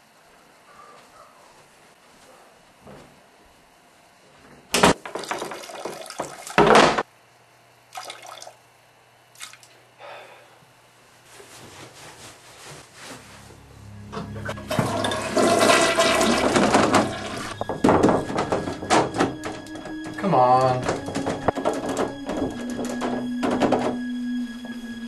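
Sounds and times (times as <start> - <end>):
toilet lid and door knocking: 14.6 - 24.4.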